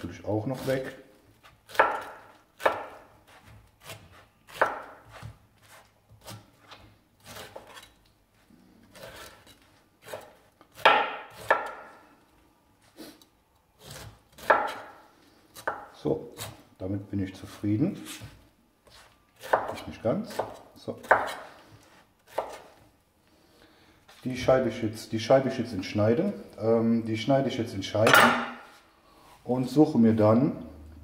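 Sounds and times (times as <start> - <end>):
knife slicing pineapple: 0.5 - 8.0, 8.9 - 11.9, 13.8 - 16.6, 17.4 - 22.8.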